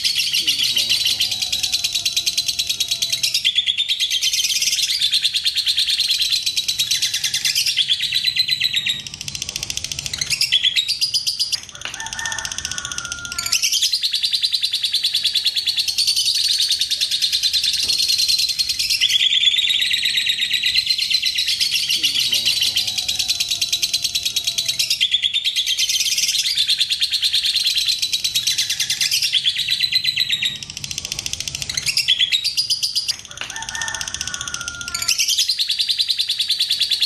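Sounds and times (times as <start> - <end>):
lovebirds chattering trills: 0.0 - 37.0.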